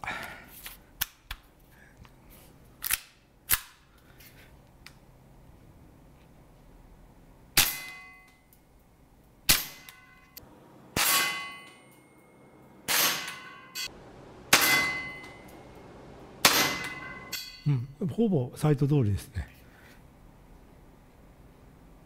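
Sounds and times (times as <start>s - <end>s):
metallic ring: 7.6s - 8.5s, 11.0s - 15.6s, 16.4s - 17.8s
airsoft pistol shots: 11.0s - 11.6s, 12.9s - 13.5s, 14.5s - 15.3s, 16.4s - 17.1s.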